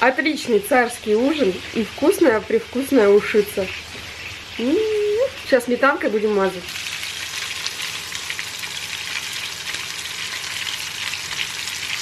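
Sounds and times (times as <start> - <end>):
fish frying in oil: 0.0 - 12.0.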